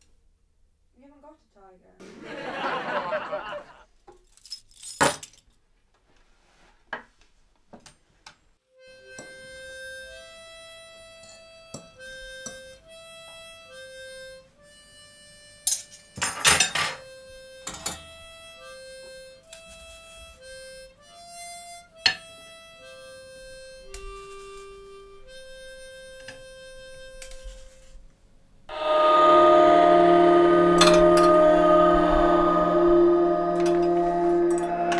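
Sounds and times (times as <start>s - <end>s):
crockery and utensils clinking: 15.7s - 17.0s
slow background music: 28.7s - 34.9s.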